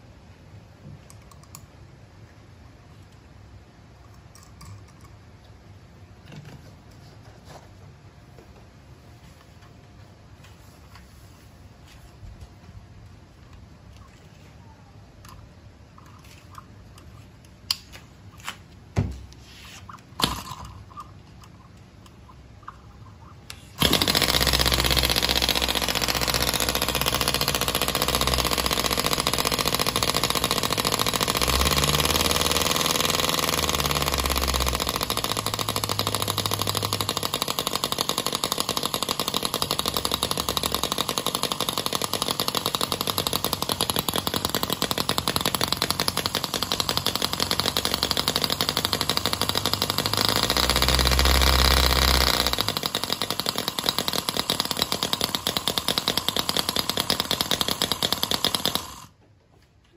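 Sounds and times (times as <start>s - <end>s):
model engine firing rattle: 20.1s - 59.2s.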